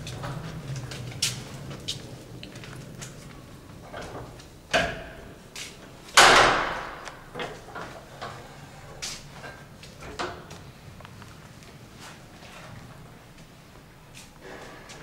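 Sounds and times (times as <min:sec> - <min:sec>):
printing press knocks and clunks: 0:04.0 - 0:05.3, 0:06.2 - 0:08.1.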